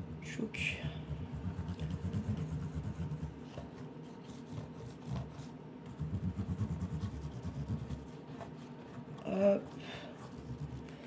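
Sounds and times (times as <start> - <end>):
kerosene heater rumbling: 0.0 - 3.6.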